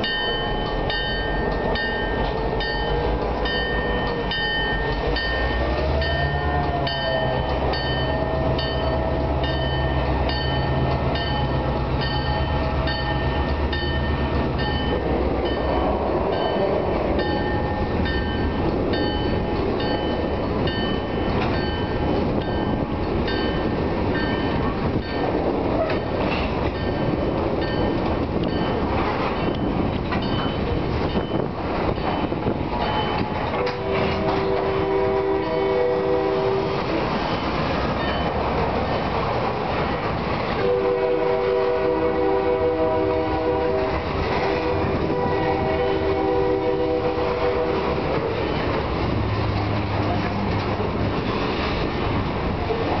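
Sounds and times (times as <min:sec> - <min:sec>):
bell dinging: 0:00.0 - 0:25.3
train wheels rumbling and clacking: 0:00.0 - 0:53.0.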